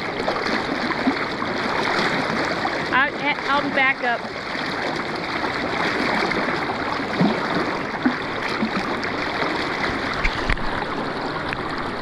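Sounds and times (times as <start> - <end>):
river current rushing: 0.0 - 12.0.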